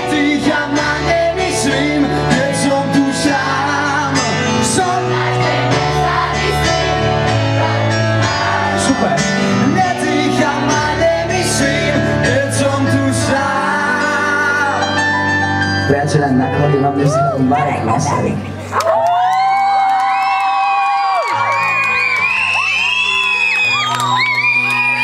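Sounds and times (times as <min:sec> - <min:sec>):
person singing: 0:00.0 - 0:06.2, 0:09.6 - 0:15.3.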